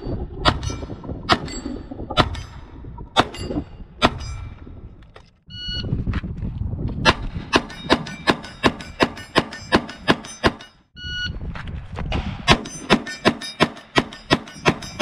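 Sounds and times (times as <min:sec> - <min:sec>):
electronic beep: 0:05.5 - 0:05.9, 0:11.0 - 0:11.3.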